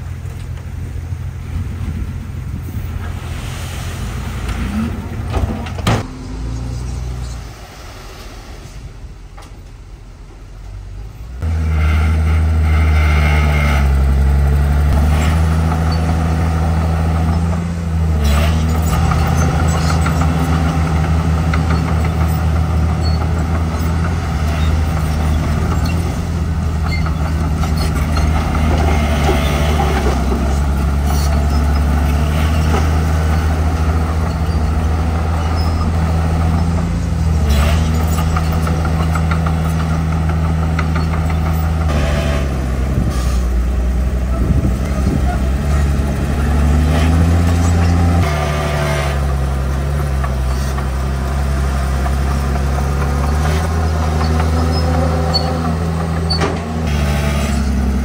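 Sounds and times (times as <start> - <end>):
heavy diesel engines running: 0.0 - 58.0.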